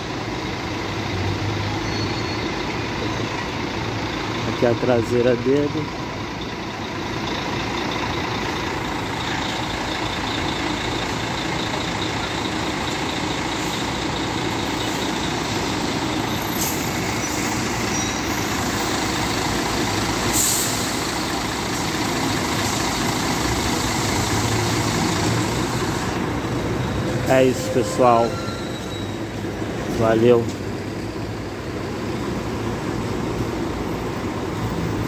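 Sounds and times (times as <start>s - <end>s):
diesel coach engine idling: 0.0s - 35.0s
air brake hiss: 20.3s - 21.1s.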